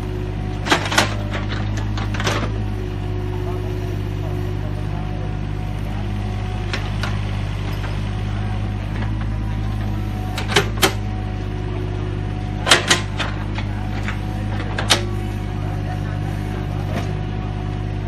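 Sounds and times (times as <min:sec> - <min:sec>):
excavator diesel engine: 0:00.0 - 0:18.0
excavator bucket clanking: 0:00.4 - 0:02.7, 0:08.8 - 0:11.2, 0:11.8 - 0:15.2.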